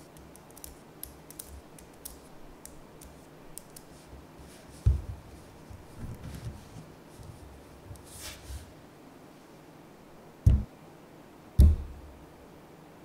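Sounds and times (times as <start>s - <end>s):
magnetic balls snapping thuds: 10.4s - 10.7s, 11.6s - 12.2s.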